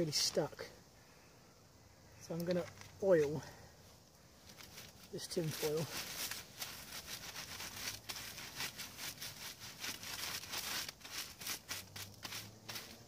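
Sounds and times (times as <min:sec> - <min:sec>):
tin foil crinkling: 0:04.4 - 0:13.0.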